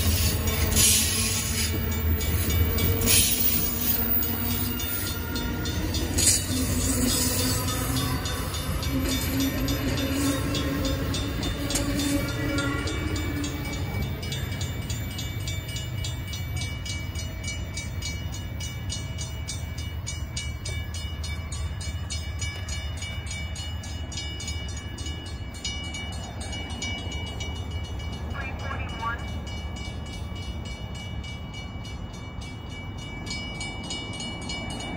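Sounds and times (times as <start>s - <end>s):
level-crossing bell ringing: 0.0s - 34.9s
train rolling past: 0.0s - 34.9s.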